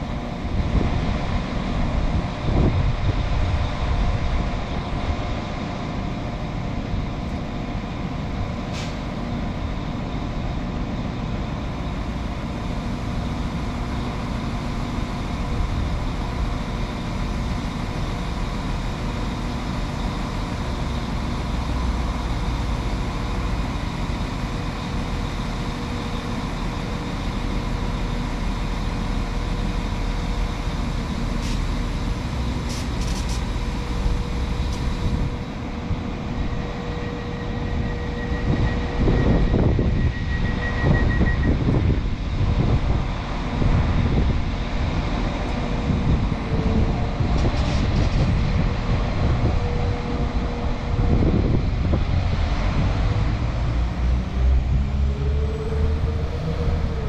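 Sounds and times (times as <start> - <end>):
train diesel engines idling: 0.0 - 57.0.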